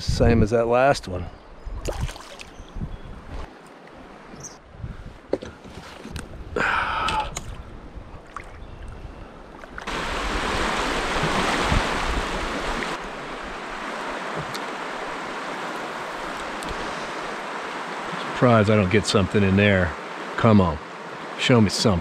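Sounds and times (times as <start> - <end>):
river water rushing: 9.8 - 22.0.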